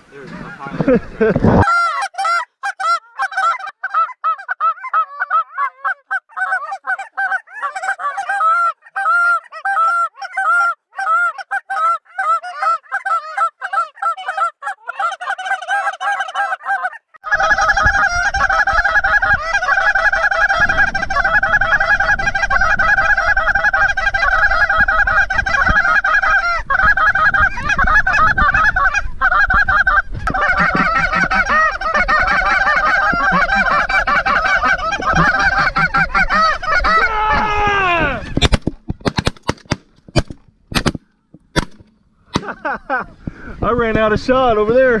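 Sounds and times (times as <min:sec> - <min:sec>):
wind rumble on microphone: 0:00.2 - 0:01.6, 0:17.3 - 0:39.0
geese honking: 0:01.6 - 0:38.4.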